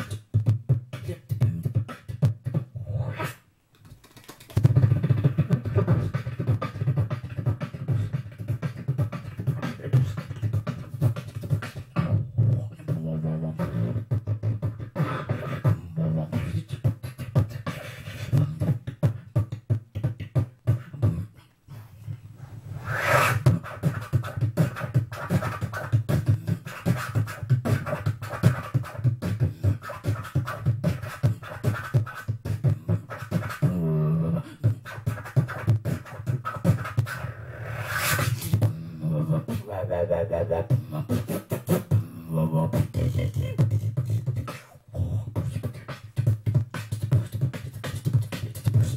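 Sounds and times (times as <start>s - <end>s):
beatboxing into microphone: 0.0s - 48.9s
long hissing sweep: 22.5s - 23.4s.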